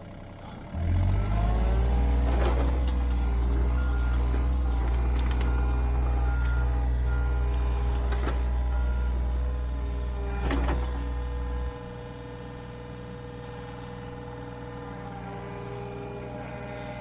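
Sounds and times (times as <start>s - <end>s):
excavator diesel engine running: 0.0s - 17.0s.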